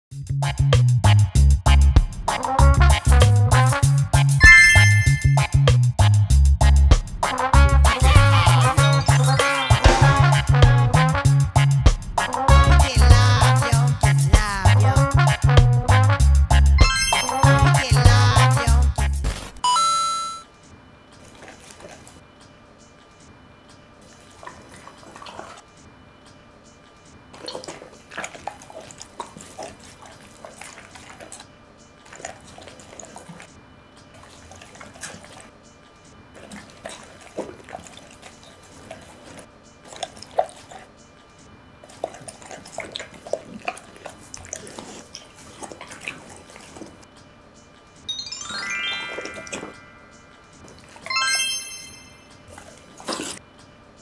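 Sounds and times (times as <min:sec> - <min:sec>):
dog chewing meat: 0:21.2 - 0:22.5, 0:24.0 - 0:26.0, 0:26.8 - 0:48.0, 0:49.6 - 0:51.1, 0:52.3 - 0:53.6.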